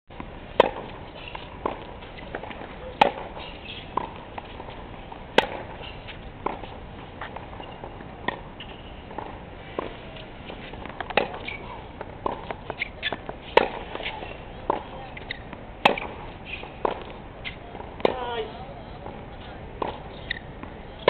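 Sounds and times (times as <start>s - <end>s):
tennis ball struck by rackets: 0.2s - 18.5s, 19.8s - 21.0s.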